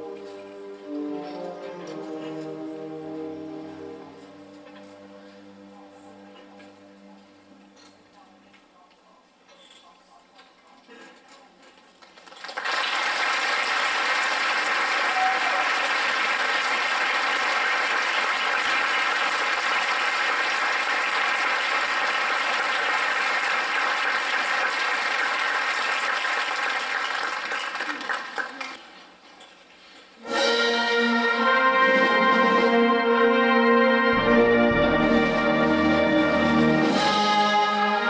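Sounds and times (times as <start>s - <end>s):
audience applause: 12.2s - 28.8s.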